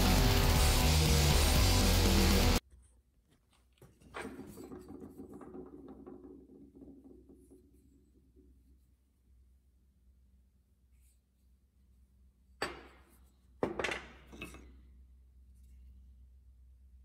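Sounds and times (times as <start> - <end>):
background music: 0.0 - 2.6.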